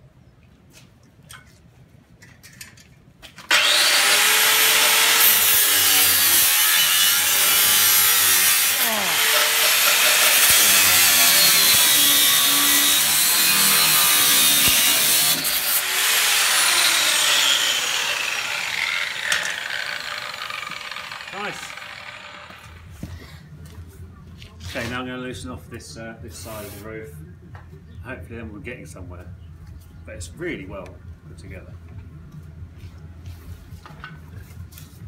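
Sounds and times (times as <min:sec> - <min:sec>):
angle grinder cutting steel: 0:03.5 - 0:22.9.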